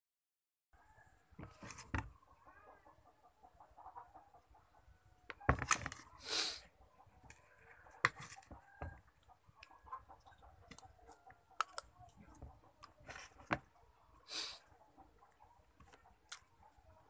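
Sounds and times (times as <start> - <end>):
chewing: 7.3 - 13.4, 15.3 - 16.8.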